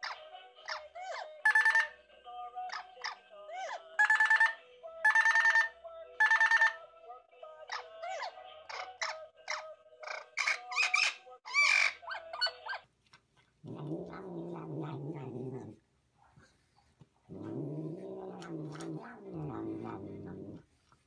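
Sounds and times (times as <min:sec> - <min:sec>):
cat moaning calls: 0:13.7 - 0:15.8, 0:17.3 - 0:20.6.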